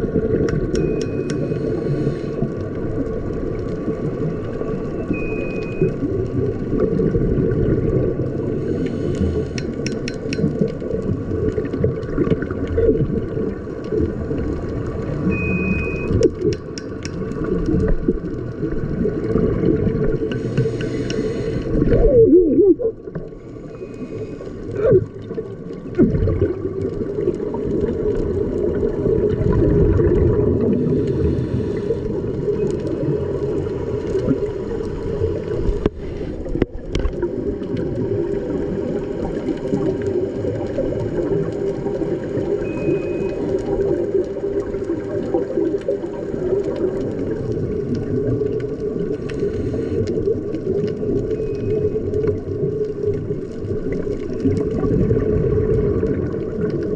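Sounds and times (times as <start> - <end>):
faint steady hums: 0.0 - 56.9
gurgling water: 0.0 - 56.9
underwater low wash: 0.0 - 56.9.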